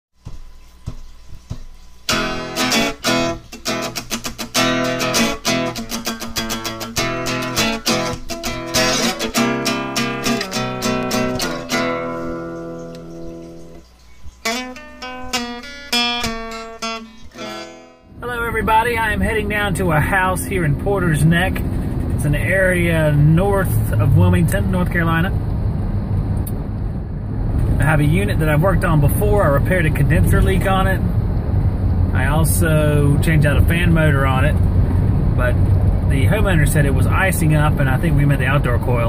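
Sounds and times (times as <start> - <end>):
acoustic guitar plucked and strummed: 2.1 - 13.8, 14.4 - 25.2.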